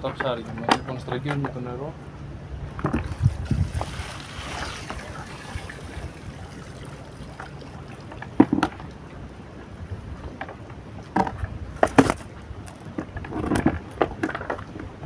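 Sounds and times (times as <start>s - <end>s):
wind rumbling on microphone: 2.1s - 15.0s
water pouring and splashing: 3.0s - 9.4s.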